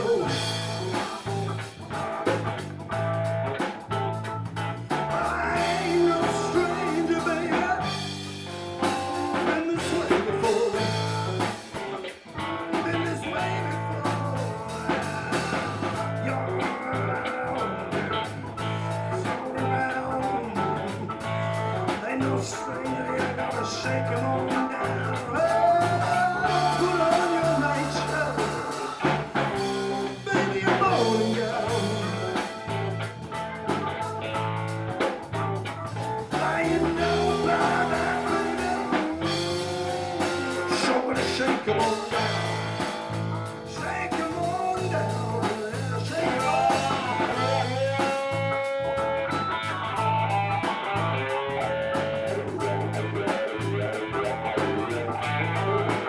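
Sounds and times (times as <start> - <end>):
blues-rock band playing: 0.0 - 56.0
electric guitar bending notes: 0.0 - 56.0.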